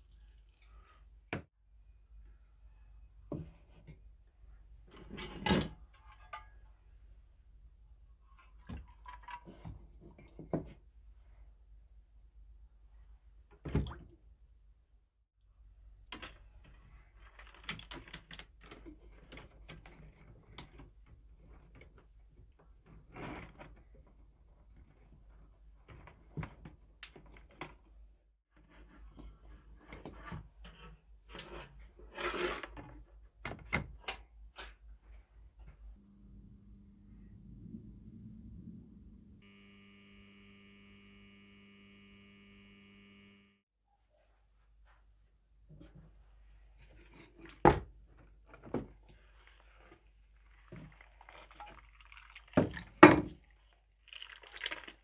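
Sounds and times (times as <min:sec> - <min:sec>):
electrical mains hum: 0:35.9 - 0:43.6.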